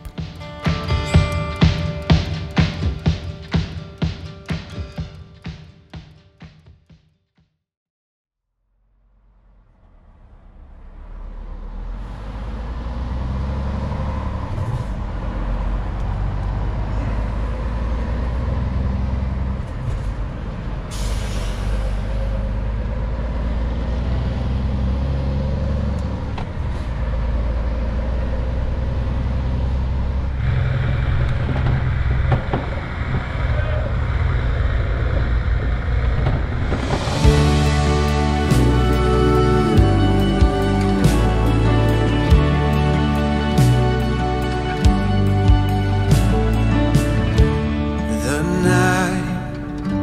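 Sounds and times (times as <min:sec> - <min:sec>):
truck diesel engine running: 0:09.0 - 0:50.0
air brakes hiss: 0:20.9 - 0:22.3.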